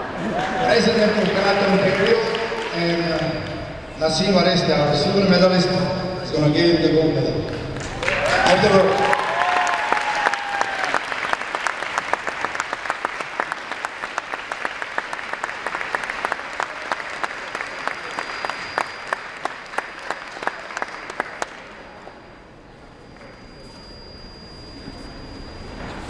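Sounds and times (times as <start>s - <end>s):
crowd applauding: 0.0s - 3.6s, 7.4s - 22.2s.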